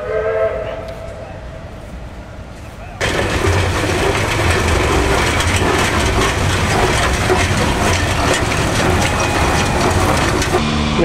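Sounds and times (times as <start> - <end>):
steam engine mechanical clatter: 3.0 - 10.6.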